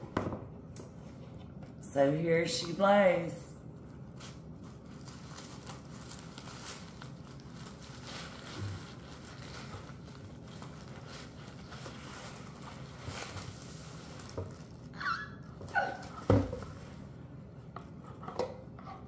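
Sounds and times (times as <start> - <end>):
packaging rustling and crinkling: 3.7 - 17.1.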